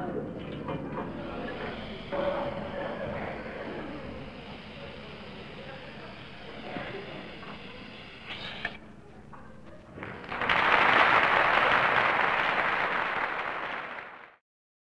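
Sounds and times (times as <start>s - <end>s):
applause: 10.0s - 14.4s.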